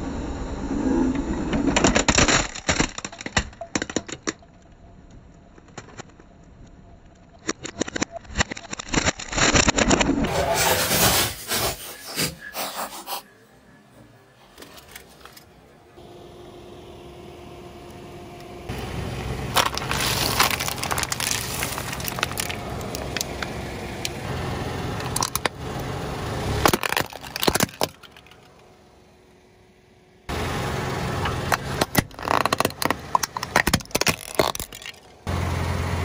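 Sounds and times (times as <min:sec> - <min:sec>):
plastic toys cracking under tyre: 0:01.5 - 0:04.8, 0:05.4 - 0:10.3, 0:19.5 - 0:24.2, 0:25.0 - 0:25.6, 0:26.6 - 0:28.6, 0:31.5 - 0:35.3
car engine running: 0:16.0 - 0:36.0.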